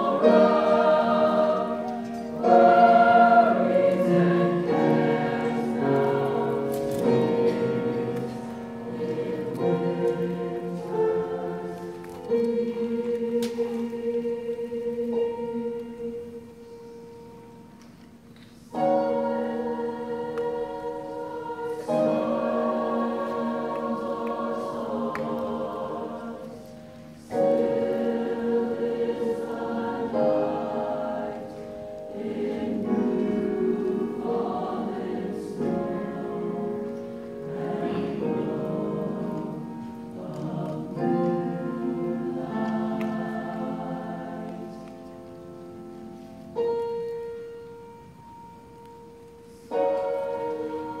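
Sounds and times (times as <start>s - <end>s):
choir singing sustained chords: 0.0s - 51.0s.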